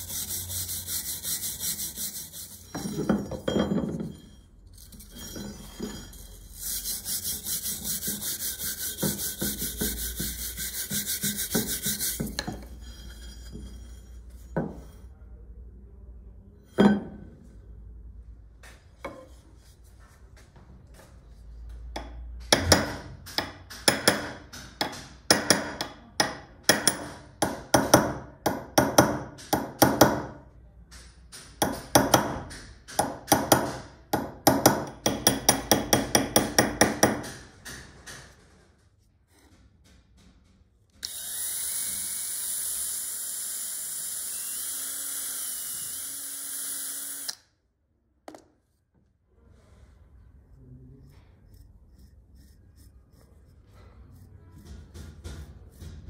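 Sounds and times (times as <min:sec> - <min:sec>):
abrasive tool scraping steel: 0:00.0 - 0:15.1, 0:50.5 - 0:56.0
knock: 0:54.6 - 0:56.0.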